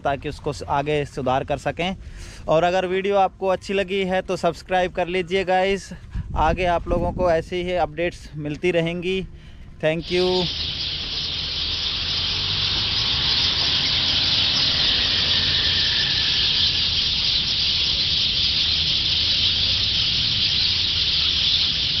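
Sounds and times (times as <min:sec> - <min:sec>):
chorus of distant waterbirds: 0:08.8 - 0:22.0.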